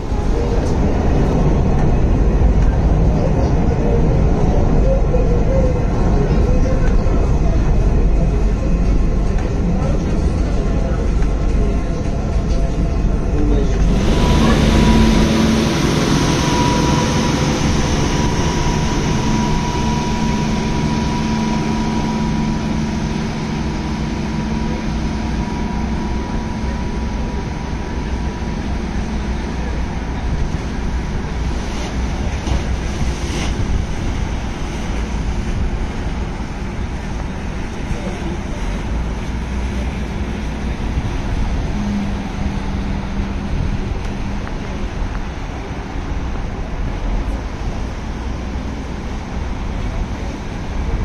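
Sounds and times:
faint high hum: 0.0 - 45.2
low rumble: 0.0 - 51.0
rushing wind: 0.0 - 51.0.

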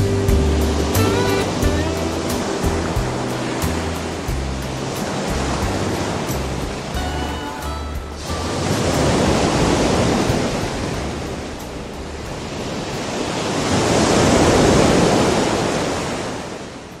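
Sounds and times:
sea waves washing on shore: 0.0 - 17.0
wind on microphone: 8.0 - 17.0.

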